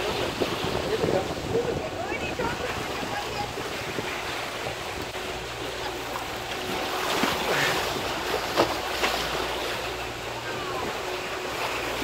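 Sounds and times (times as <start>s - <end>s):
wind on microphone: 0.0s - 5.6s
water rushing along boat hull: 0.0s - 12.0s
sharp water splashes: 2.5s - 10.3s.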